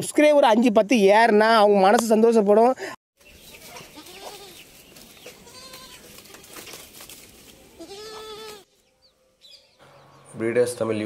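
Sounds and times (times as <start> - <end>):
goat kids bleating: 3.6 - 6.6, 7.7 - 8.7.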